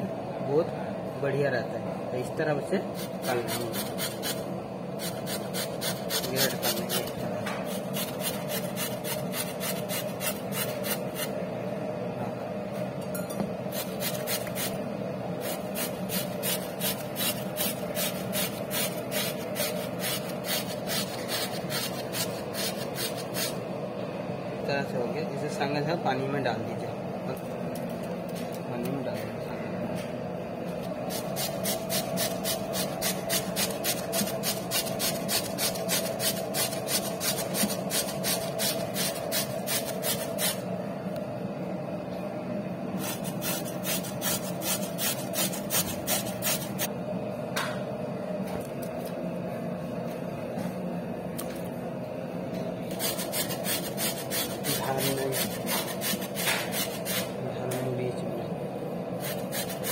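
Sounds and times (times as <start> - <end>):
potato grating on metal grater: 2.9 - 4.4, 5.0 - 11.3, 13.7 - 14.8, 15.4 - 23.6, 31.1 - 40.6, 43.0 - 46.9, 52.9 - 57.3, 59.2 - 59.9.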